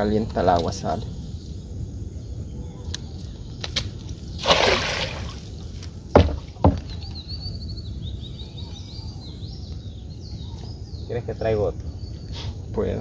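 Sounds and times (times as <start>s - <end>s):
cast net splashing on water: 4.4s - 5.5s
dull knocks: 6.1s - 7.1s.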